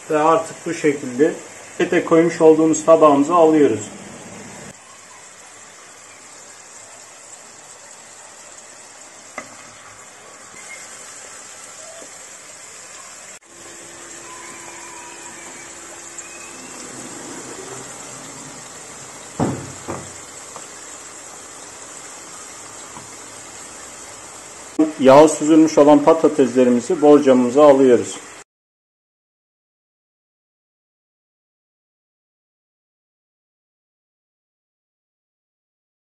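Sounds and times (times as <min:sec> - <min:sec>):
oil sizzling: 0:00.0 - 0:28.4
sharp knocks: 0:19.3 - 0:20.2.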